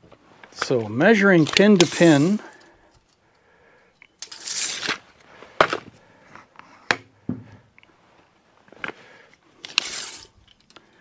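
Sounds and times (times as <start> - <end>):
tape measure rustling: 0.4 - 3.2, 4.2 - 5.3, 9.6 - 10.8.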